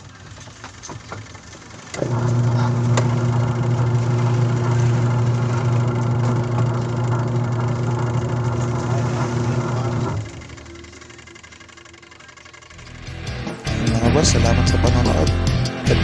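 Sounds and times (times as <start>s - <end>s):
washing machine motor humming: 0.0s - 15.5s.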